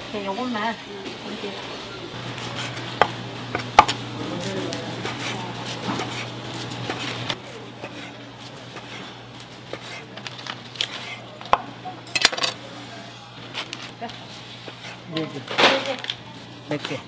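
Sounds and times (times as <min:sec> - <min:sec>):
dishes and utensils clinking: 0:12.1 - 0:12.6.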